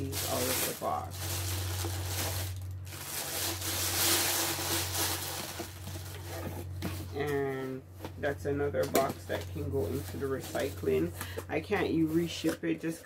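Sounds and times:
steady low hum: 0.0s - 13.0s
cardboard box rustling and scraping: 0.3s - 8.2s.

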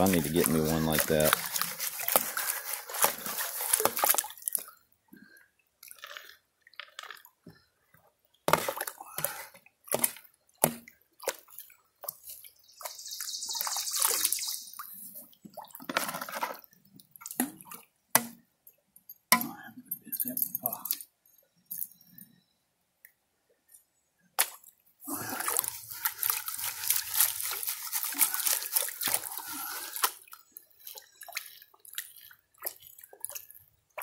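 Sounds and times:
water sloshing in plastic pan: 0.0s - 4.8s, 15.2s - 17.9s, 25.3s - 34.0s.

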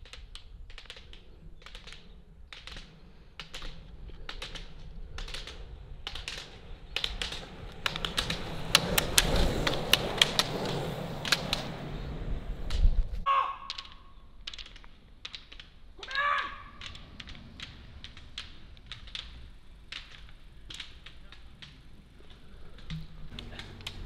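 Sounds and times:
roller-ski wheels rumbling on road: 0.0s - 24.0s
ski pole tips clicking on asphalt: 0.0s - 24.0s.

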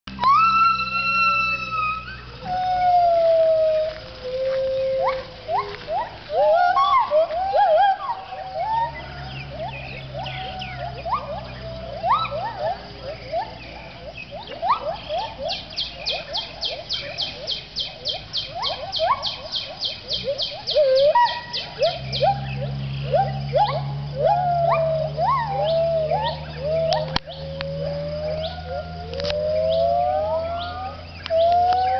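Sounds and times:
gibbons whooping: 0.1s - 31.9s.

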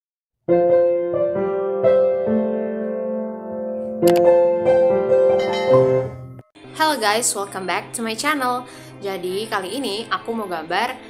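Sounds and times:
keyboard chords: 0.5s - 6.6s.

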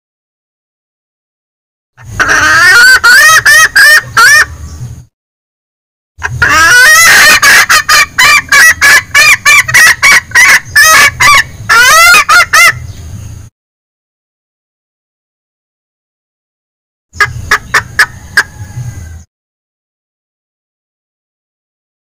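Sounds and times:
hen rapid clucking call: 2.0s - 4.6s, 6.2s - 13.0s, 17.2s - 19.3s.

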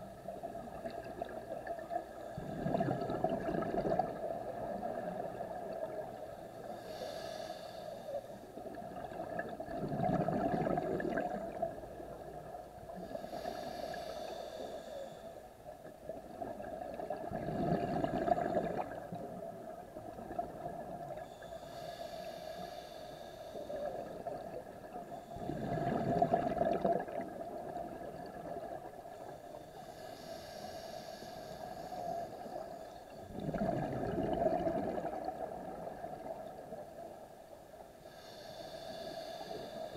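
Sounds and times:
bubbling exhale underwater: 0.5s - 6.0s, 8.8s - 11.8s, 16.5s - 19.4s, 25.4s - 28.8s, 33.3s - 36.6s
regulator hissing inhale: 5.9s - 8.6s, 12.9s - 15.7s, 21.1s - 25.8s, 29.1s - 33.4s, 37.8s - 39.9s.

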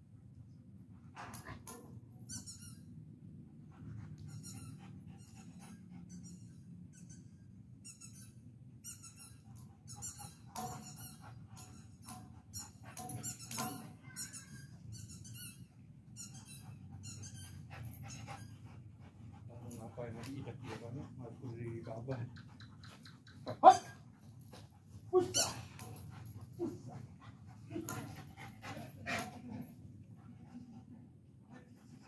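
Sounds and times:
dog whining: 25.1s - 27.0s.

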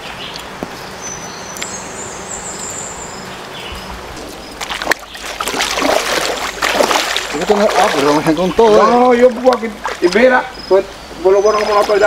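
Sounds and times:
running river water: 3.8s - 12.0s
people wading through water: 4.2s - 12.0s.

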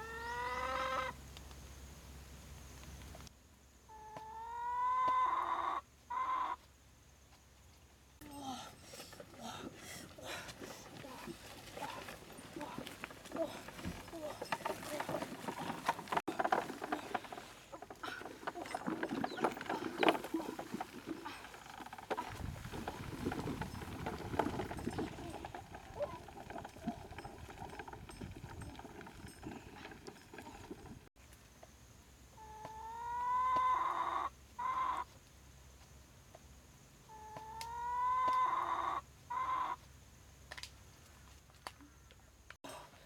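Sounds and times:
quiet rustling: 8.6s - 31.1s.

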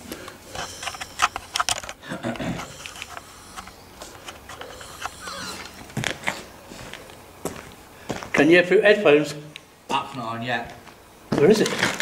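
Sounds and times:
equipment clicks and rustles: 0.1s - 6.4s, 11.4s - 12.0s.

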